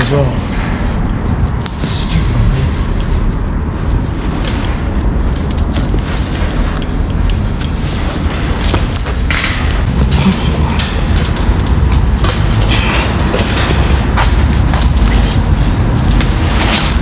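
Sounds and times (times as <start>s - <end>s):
low rumble: 0.0s - 17.0s
clothing scraping on concrete: 5.7s - 17.0s.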